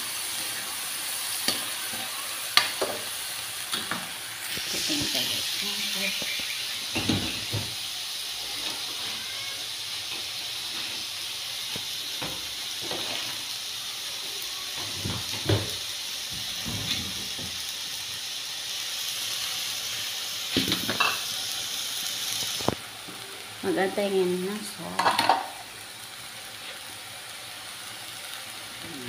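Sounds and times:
meat sizzling in oil: 0:00.0 - 0:29.0.

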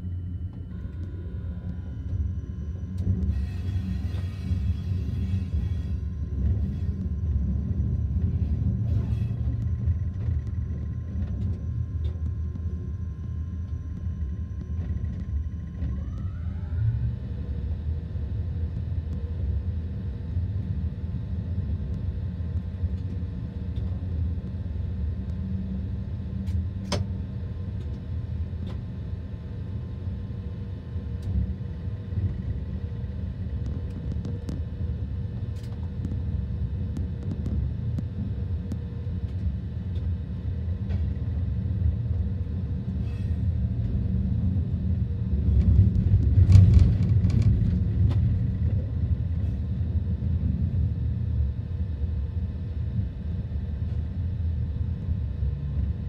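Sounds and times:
humming tones: 0:00.0 - 0:26.8
train low rumble: 0:00.0 - 0:56.0.

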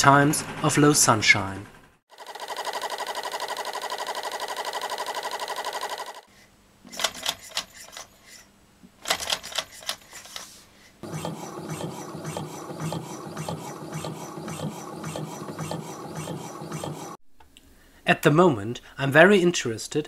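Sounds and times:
stirling engine mechanical clatter: 0:11.0 - 0:17.2.

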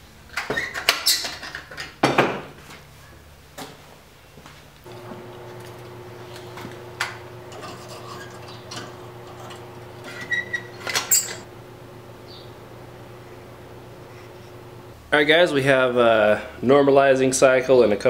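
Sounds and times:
steady hum: 0:04.9 - 0:15.2
metal clinks: 0:07.5 - 0:11.5.

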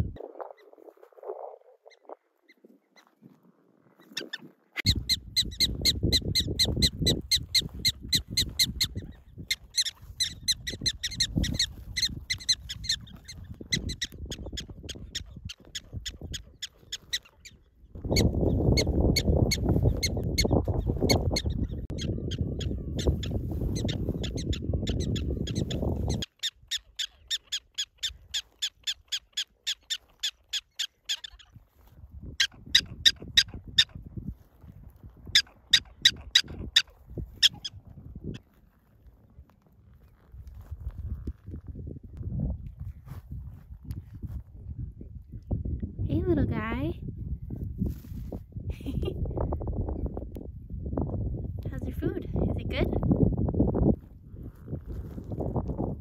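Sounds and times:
wind rumble on microphone: 0:00.0 - 0:27.0, 0:31.4 - 0:56.0
prairie dogs chirping barks: 0:03.9 - 0:34.1, 0:35.3 - 0:38.5.

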